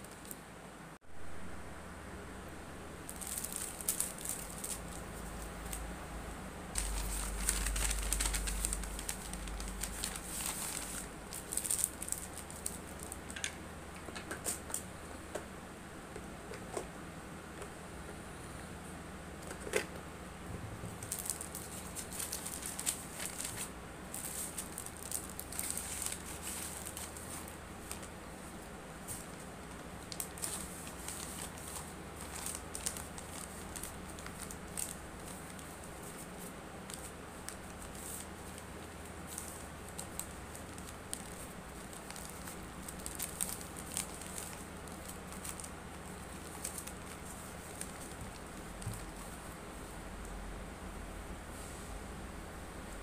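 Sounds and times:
packaging rustling: 3.1 - 5.8, 6.8 - 13.4, 21.0 - 49.4.

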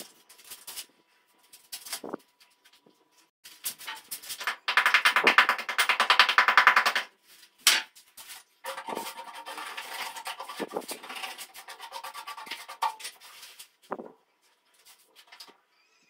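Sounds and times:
hand scraping a hard surface: 8.2 - 14.0.

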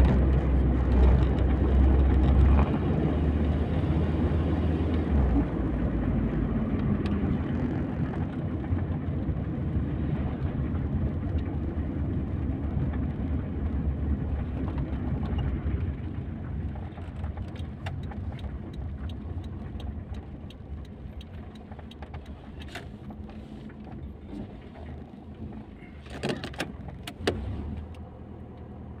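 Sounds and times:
car engine and road rumble: 0.0 - 29.0
light ticks: 16.6 - 24.0.

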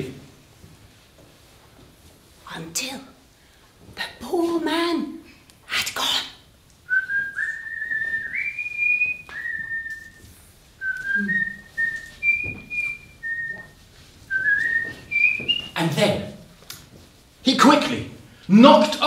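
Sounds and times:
person whistling a tune: 6.9 - 15.8.

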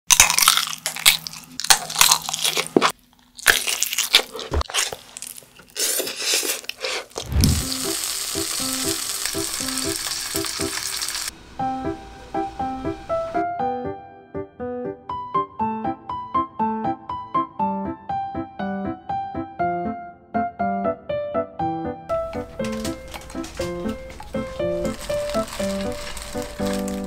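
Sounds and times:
crunchy bites and chewing: 0.1 - 7.7
slurping noodles: 5.7 - 7.7
frying sizzle: 7.1 - 12.2, 22.3 - 27.0.

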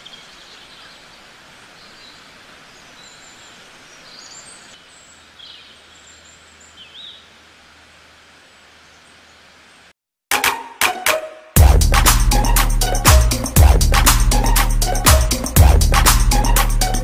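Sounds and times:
outdoor background hiss: 0.0 - 10.0.

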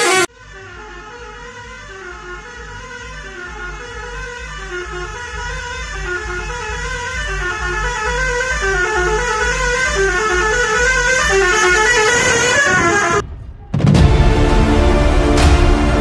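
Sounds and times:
musical air horn playing tune: 0.0 - 13.2
low pulsing beat: 2.7 - 12.0, 13.2 - 16.0.

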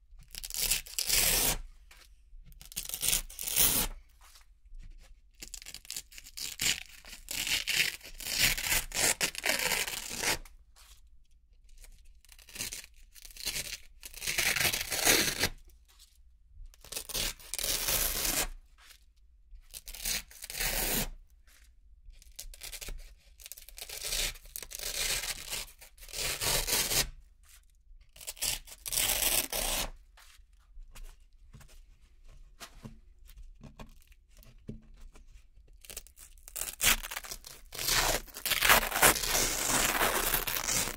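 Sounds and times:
velcro ripping: 0.5 - 1.6, 2.8 - 3.9, 6.4 - 10.4, 14.1 - 15.5, 23.7 - 27.1, 28.3 - 29.9, 35.8 - 40.9.

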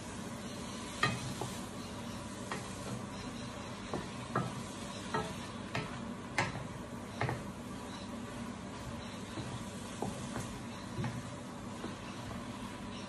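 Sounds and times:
food sizzling in a wok: 0.0 - 7.4, 8.3 - 12.8
spatula knocking and scraping pan: 1.0 - 1.6, 3.8 - 7.6, 9.2 - 12.4.

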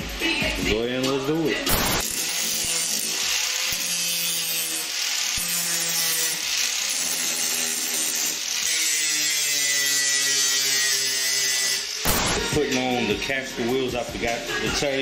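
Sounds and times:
angle grinder grinding steel: 1.7 - 13.6.

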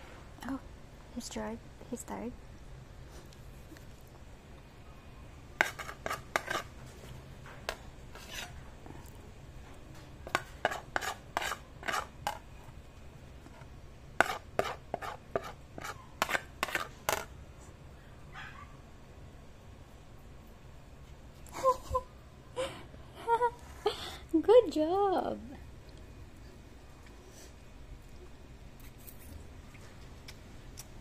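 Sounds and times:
metal spoon scraping ceramic plate: 5.6 - 6.8, 8.1 - 8.6, 10.3 - 12.4, 14.2 - 17.3.

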